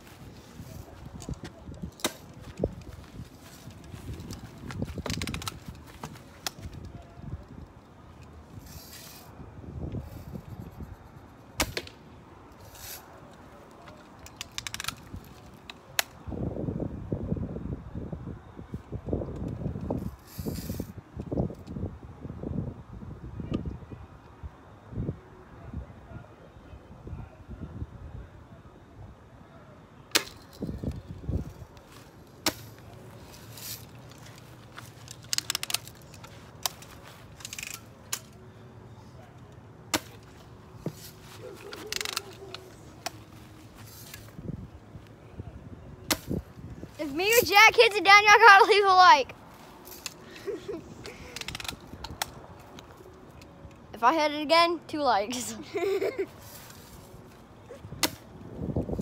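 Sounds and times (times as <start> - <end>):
rifle handling clicks and rattles: 0.5 - 9.3, 11.8 - 16.2, 30.1 - 38.4, 39.4 - 44.3, 49.6 - 53.8.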